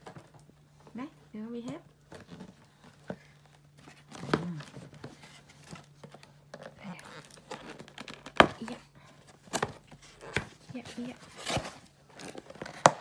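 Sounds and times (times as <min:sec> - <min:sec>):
cardboard and tape tearing: 0:09.5 - 0:13.0.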